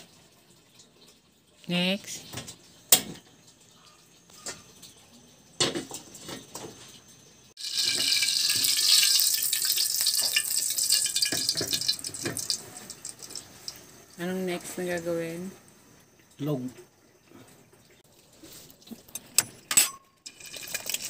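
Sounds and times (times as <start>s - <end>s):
liquid sizzling in a wok: 7.5s - 14.7s, 20.2s - 21.0s.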